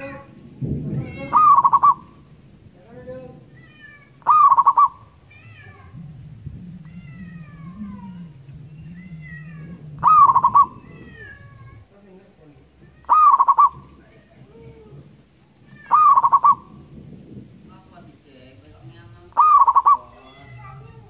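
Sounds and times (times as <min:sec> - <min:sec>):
dove cooing: 0:01.1 - 0:02.3, 0:04.2 - 0:11.8, 0:12.9 - 0:17.0, 0:19.3 - 0:21.0.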